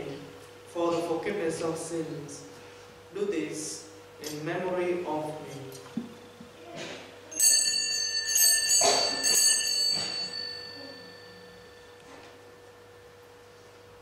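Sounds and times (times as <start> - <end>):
faint steady hum: 0.0 - 14.0
altar bells ringing: 7.3 - 12.5.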